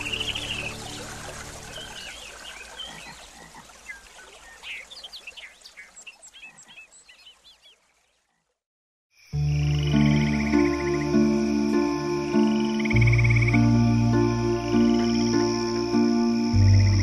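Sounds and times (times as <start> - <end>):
low music drone: 0.0 - 1.8, 9.4 - 17.0
music with held tones and trill: 9.4 - 17.0.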